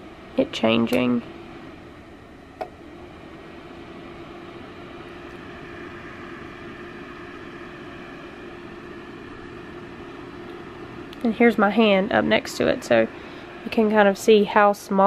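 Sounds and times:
heater fan whooshing: 0.0 - 15.0
steady heater hum: 0.0 - 15.0
heater switch click: 0.8 - 1.1, 2.6 - 2.8.

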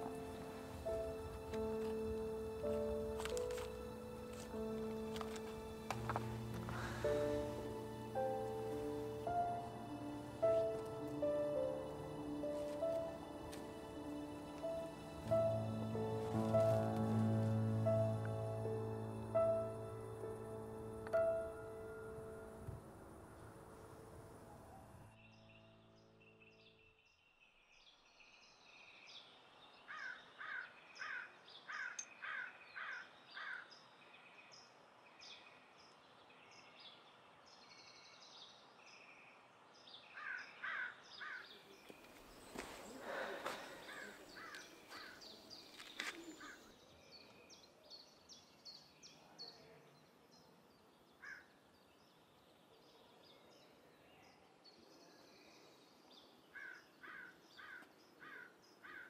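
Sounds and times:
small birds chirping: 25.2 - 59.0
crows cawing: 29.9 - 33.7, 40.2 - 41.4, 43.0 - 45.2, 51.2 - 51.5, 56.6 - 59.0.

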